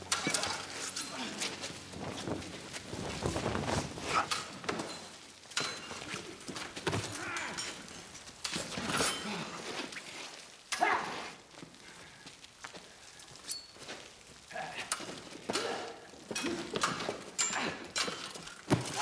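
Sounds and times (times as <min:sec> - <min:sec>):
bodies and clothing struggling: 0:00.0 - 0:05.2
footsteps: 0:00.0 - 0:10.6.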